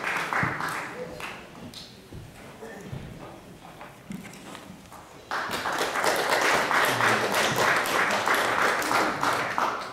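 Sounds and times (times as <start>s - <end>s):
audience applause: 0.0s - 1.4s, 5.3s - 9.9s.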